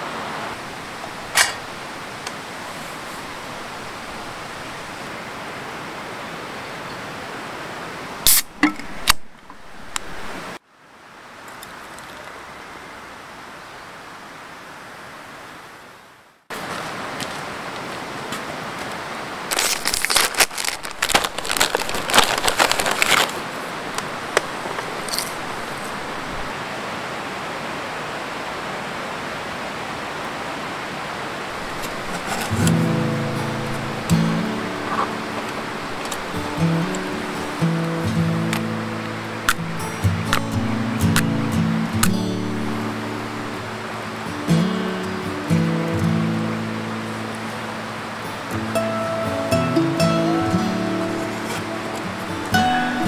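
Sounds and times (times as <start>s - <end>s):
stream rushing: 0.0s - 53.0s
plucked guitar music: 32.4s - 53.0s.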